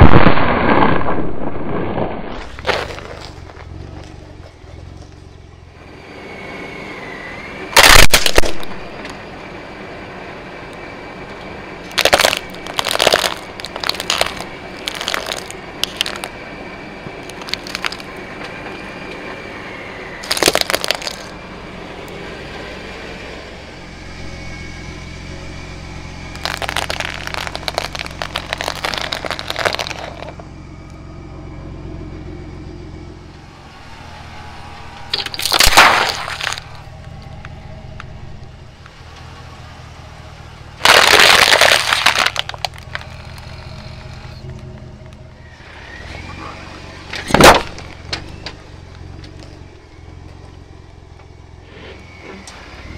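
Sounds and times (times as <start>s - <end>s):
low vehicle rumble: 0.0s - 52.9s
brittle plastic cracking: 11.9s - 16.3s, 17.2s - 18.1s, 20.2s - 21.3s, 26.4s - 30.4s, 35.1s - 36.7s, 40.8s - 43.8s.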